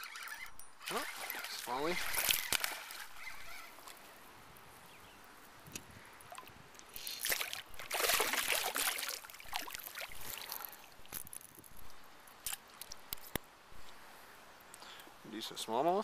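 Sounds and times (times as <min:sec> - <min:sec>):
fish splashing at water surface: 0:07.0 - 0:10.7.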